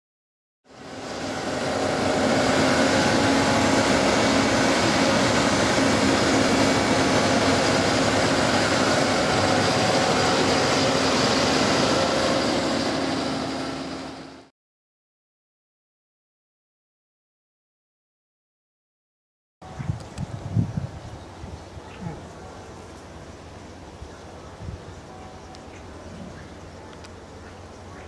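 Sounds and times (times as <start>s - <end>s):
tractor and seed drill hum: 0.7s - 14.5s.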